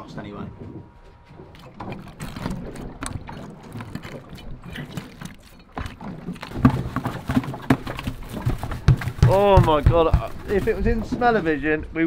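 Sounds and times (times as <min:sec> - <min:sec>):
wind: 0:00.0 - 0:12.0
metal masher pounding fish: 0:05.8 - 0:10.8
scattered knocks: 0:05.8 - 0:11.4.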